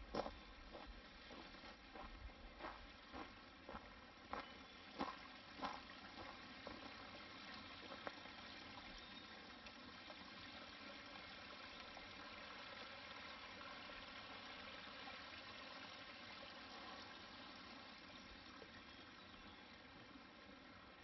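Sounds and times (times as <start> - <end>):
creek trickling over pebbles: 0.0 - 21.0
footsteps on forest floor: 0.1 - 6.4.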